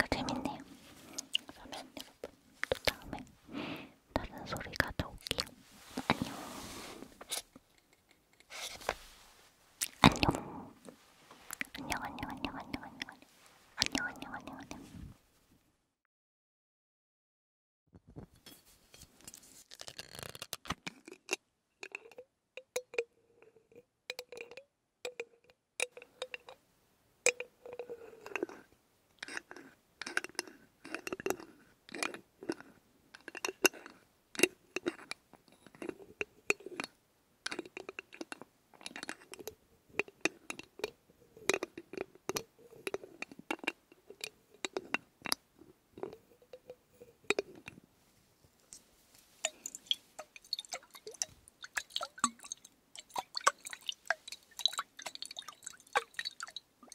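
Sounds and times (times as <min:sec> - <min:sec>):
fingers tapping a glass bottle: 0:21.8 - 0:23.1, 0:24.1 - 0:26.6.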